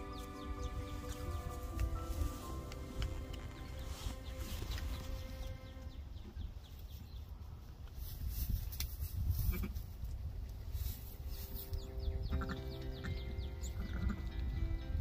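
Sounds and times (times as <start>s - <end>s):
steady low rumble: 0.0s - 6.7s
sheep bleating: 12.3s - 13.1s.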